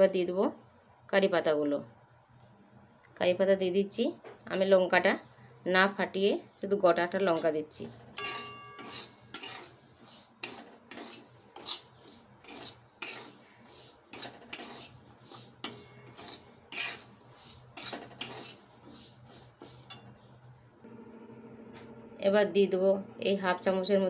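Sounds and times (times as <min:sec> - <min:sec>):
metal spatula scraping pan: 0:08.2 - 0:20.4.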